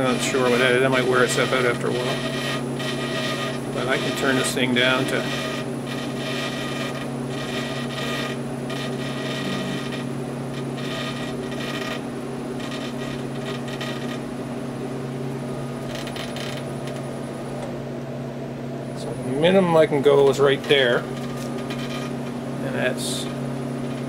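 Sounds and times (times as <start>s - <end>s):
drive belt creaking: 0.0s - 12.0s
drill press motor hum: 0.0s - 24.0s.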